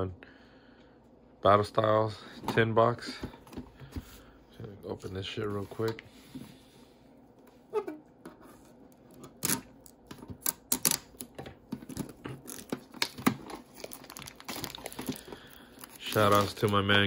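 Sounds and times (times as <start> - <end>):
plastic wrapping tearing and crinkling: 9.2 - 17.0.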